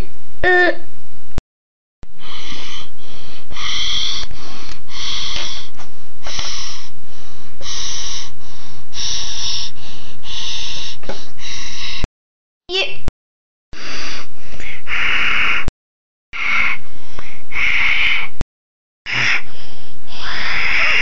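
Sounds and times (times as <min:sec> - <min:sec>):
person breathing into microphone: 0:02.1 - 0:12.1, 0:13.8 - 0:15.7, 0:16.4 - 0:18.4, 0:19.1 - 0:21.0.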